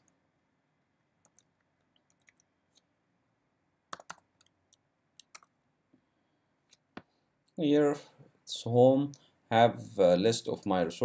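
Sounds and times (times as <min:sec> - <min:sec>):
computer keyboard typing: 0:01.2 - 0:02.8, 0:03.9 - 0:05.6.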